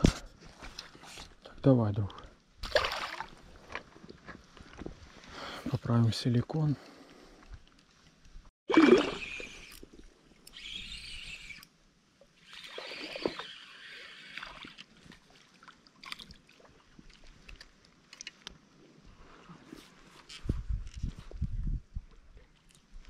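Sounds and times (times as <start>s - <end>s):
water splashing and sloshing: 2.6s - 4.4s, 7.5s - 10.6s, 12.2s - 18.6s.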